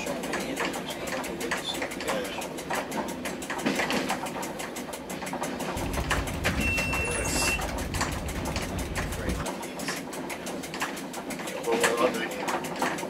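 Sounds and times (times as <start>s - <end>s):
train wheels clicking: 0.0s - 13.0s
low rumble: 5.8s - 9.4s
high beep: 6.5s - 7.7s.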